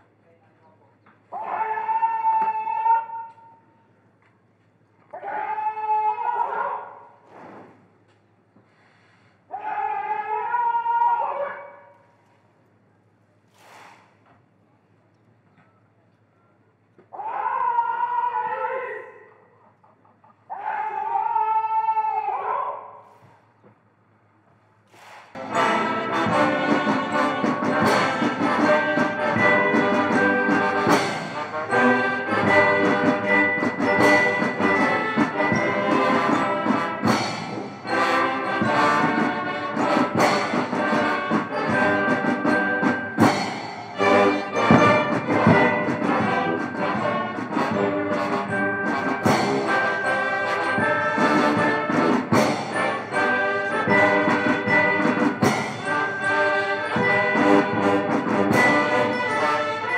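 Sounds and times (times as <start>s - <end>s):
drum beats: 24.9s - 59.9s
military brass band playing: 25.0s - 59.9s.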